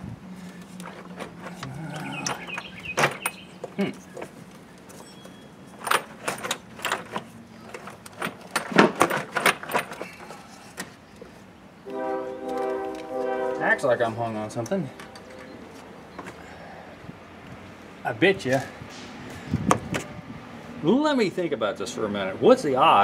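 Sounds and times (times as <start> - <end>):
hand tools clunking and rattling: 0.4 - 11.4, 14.5 - 16.7.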